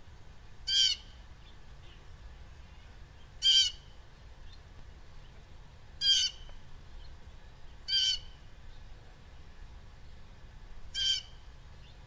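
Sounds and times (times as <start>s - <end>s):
blue jay calling: 0.7s - 1.2s, 2.7s - 4.0s, 6.0s - 6.5s, 7.9s - 8.4s, 10.9s - 12.0s.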